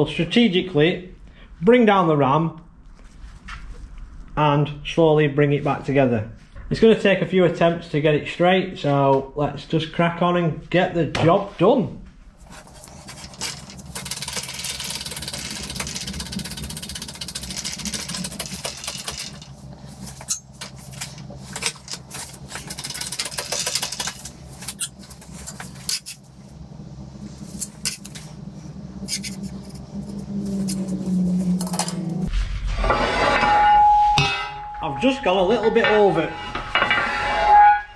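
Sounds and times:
steady low hum: 0:10.5 - 0:37.9.

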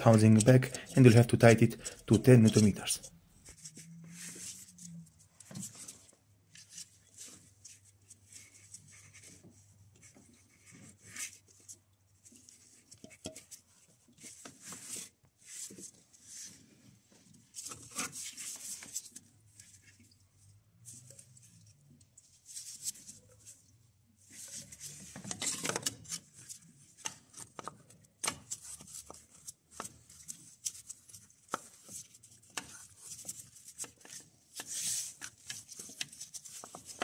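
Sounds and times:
rubbing and scraping: 0:00.0 - 0:20.0.

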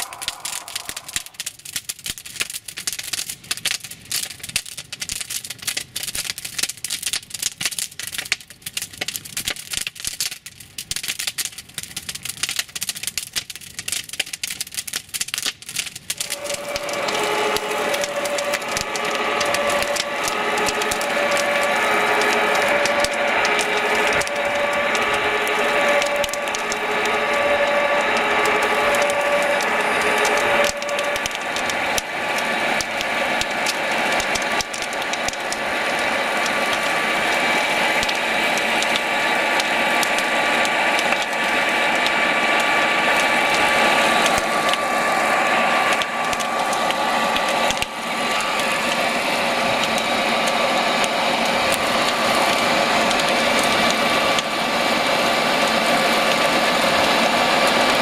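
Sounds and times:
two-tone siren: 0:00.0 - 0:01.7, 0:16.2 - 0:58.0
crackling flames: 0:00.0 - 0:58.0.

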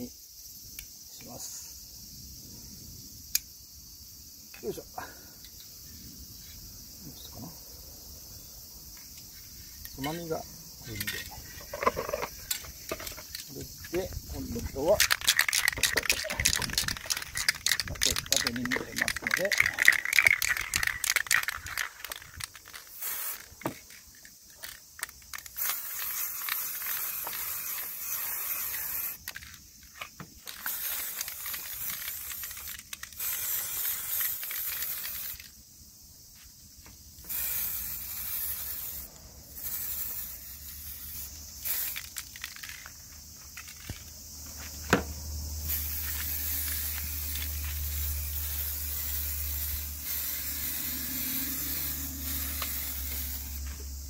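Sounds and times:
spray paint can hissing: 0:08.6 - 0:35.6, 0:36.4 - 0:54.0
spray can rattling: 0:08.9 - 0:35.6, 0:37.3 - 0:44.2, 0:45.7 - 0:54.0.

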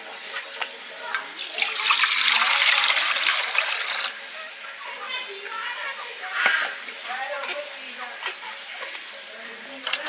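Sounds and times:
water gushing loudly: 0:00.9 - 0:07.3.

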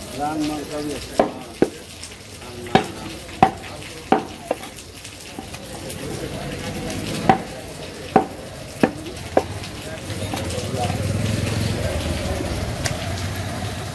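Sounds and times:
knife knocking on wooden block: 0:01.2 - 0:01.8, 0:02.6 - 0:04.8, 0:05.4 - 0:06.0, 0:07.2 - 0:09.7.

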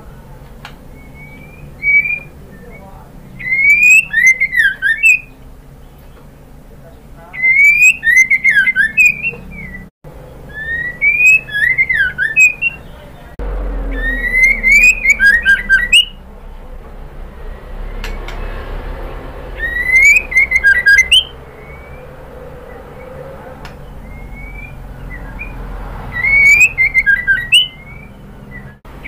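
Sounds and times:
songbird whistling phrases: 0:00.8 - 0:06.3, 0:07.3 - 0:13.3, 0:13.9 - 0:16.2, 0:19.5 - 0:28.8.

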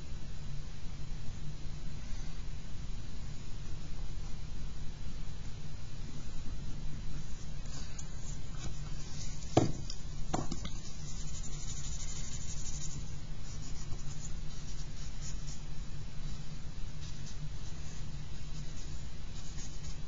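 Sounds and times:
steady low hum: 0:00.0 - 0:20.0
charcoal pencil on paper: 0:07.8 - 0:15.7, 0:17.0 - 0:20.0
eraser scratching on paper: 0:10.4 - 0:15.6.

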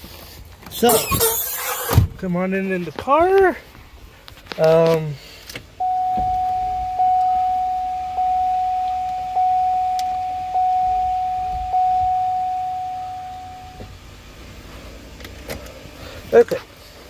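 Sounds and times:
car warning chime: 0:05.8 - 0:13.9.

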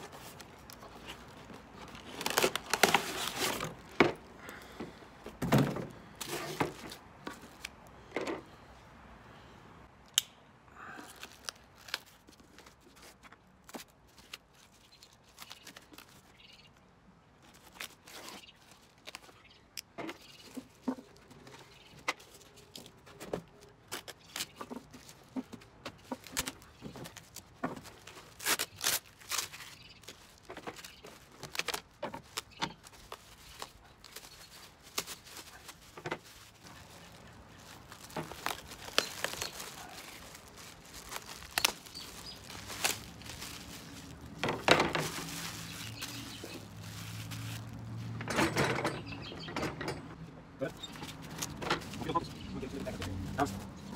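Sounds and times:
plastic wrap rustling: 0:00.0 - 0:04.7, 0:11.1 - 0:16.4, 0:17.4 - 0:19.4, 0:20.4 - 0:48.2, 0:50.8 - 0:53.9.

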